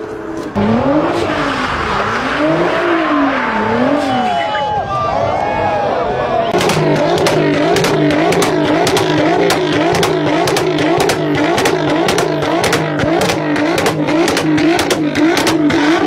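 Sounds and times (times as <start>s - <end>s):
car engine revving: 0.0s - 4.4s, 6.5s - 16.0s
sharp exhaust cracks: 6.5s - 16.0s.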